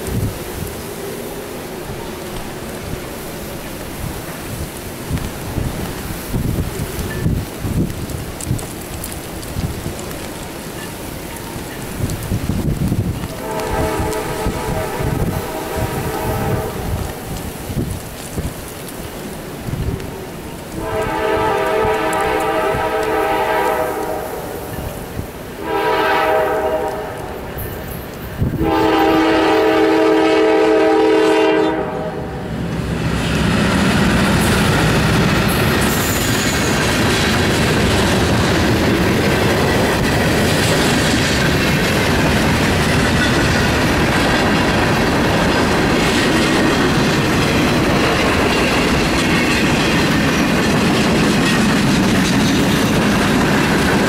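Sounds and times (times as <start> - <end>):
freight train rumbling past: 0.0 - 54.0
wheels clacking over rail joints: 2.0 - 15.9, 32.7 - 54.0
locomotive air horn blasts: 13.3 - 17.1, 20.8 - 24.7, 25.6 - 27.4, 28.5 - 32.4.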